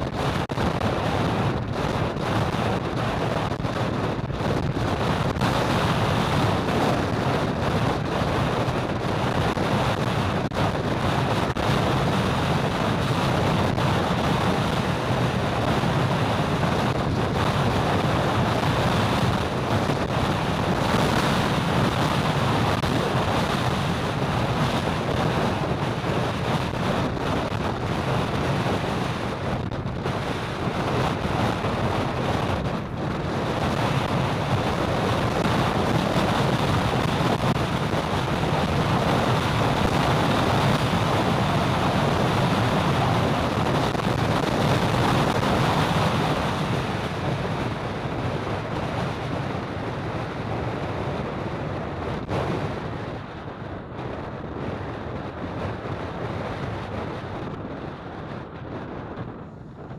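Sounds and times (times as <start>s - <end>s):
highway road noise: 0.0s - 59.9s
wind on microphone: 0.0s - 59.9s.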